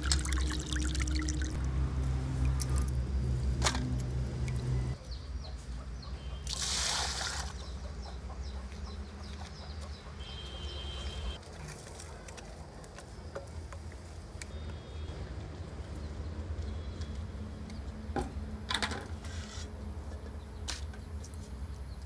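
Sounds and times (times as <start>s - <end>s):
water sloshing and dribbling: 0.0s - 1.6s
birds calling: 4.5s - 11.4s.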